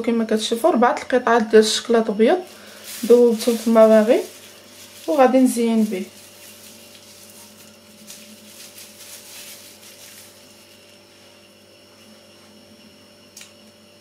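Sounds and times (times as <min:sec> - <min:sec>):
low steady hum: 0:00.0 - 0:14.0
plastic bag crinkling: 0:02.3 - 0:11.0.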